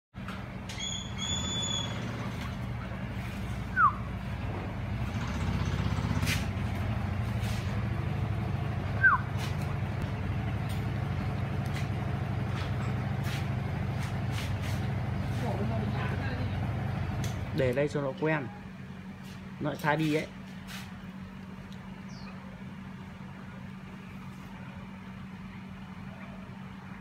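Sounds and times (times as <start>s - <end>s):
low mechanical hum: 0.2s - 27.0s
falling whistled chirps: 0.8s - 2.0s.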